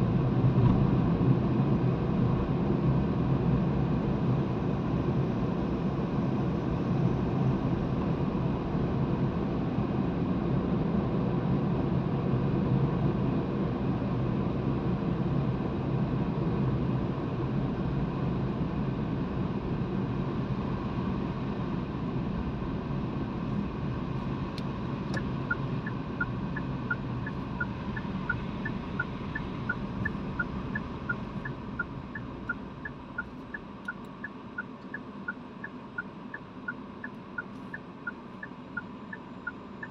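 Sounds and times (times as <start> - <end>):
car tyres and engine noise: 0.0 - 39.9
turn signal ticking: 24.5 - 39.9.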